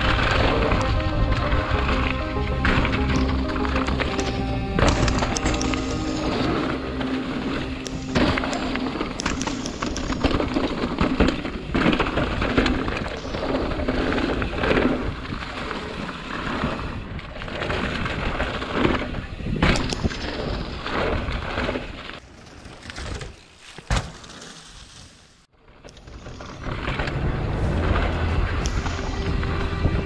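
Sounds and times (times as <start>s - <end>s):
tyre and wind noise: 0.0s - 30.0s
bike knocks and rattles: 8.2s - 25.0s.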